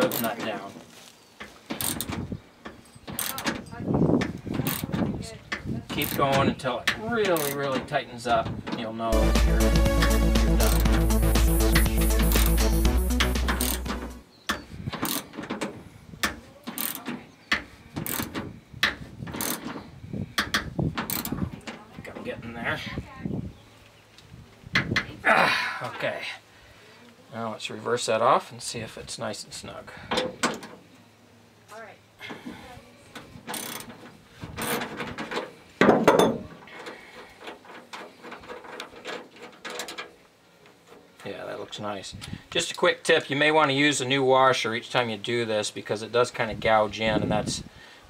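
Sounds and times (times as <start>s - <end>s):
ratchet wrench clicking: 13.5s - 13.9s
metal scraping and clicking: 20.4s - 21.4s, 36.8s - 41.0s.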